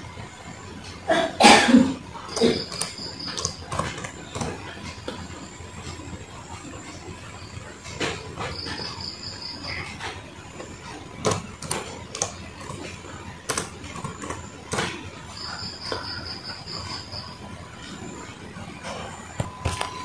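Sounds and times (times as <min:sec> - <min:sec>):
cricket chirping trill: 0:01.5 - 0:07.7, 0:08.3 - 0:10.1, 0:13.6 - 0:18.3
laptop keyboard keys clicking: 0:02.3 - 0:05.2, 0:10.6 - 0:17.1.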